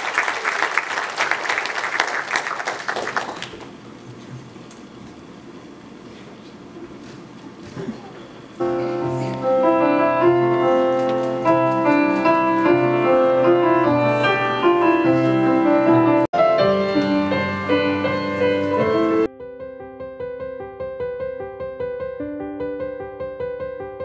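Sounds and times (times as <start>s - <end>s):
piano music: 8.5s - 24.0s.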